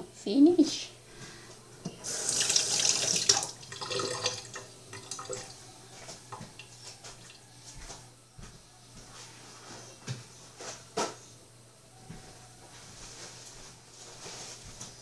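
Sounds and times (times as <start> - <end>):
kitchen tap running: 1.8 - 5.7.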